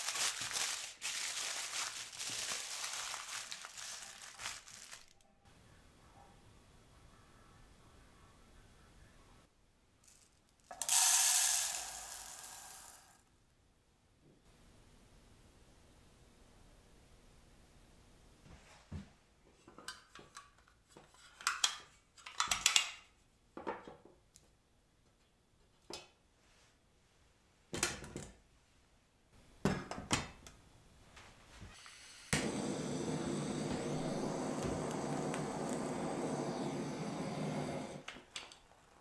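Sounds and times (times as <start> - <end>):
torch lighter hissing: 31.8 - 38.1.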